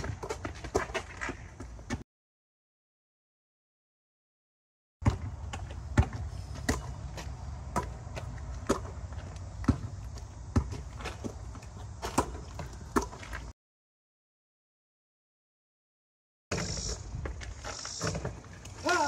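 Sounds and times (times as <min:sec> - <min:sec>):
basketball bouncing on concrete: 0:00.0 - 0:02.0, 0:05.0 - 0:13.5.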